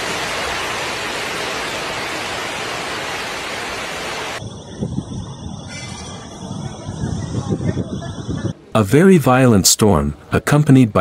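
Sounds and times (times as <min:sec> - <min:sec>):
heavy rain with strong wind: 0:00.0 - 0:05.0.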